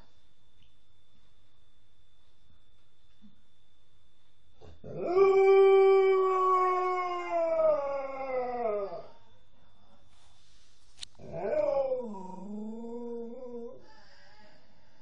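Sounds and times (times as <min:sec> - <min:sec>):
dog howling: 0:04.8 - 0:09.1, 0:11.2 - 0:13.8.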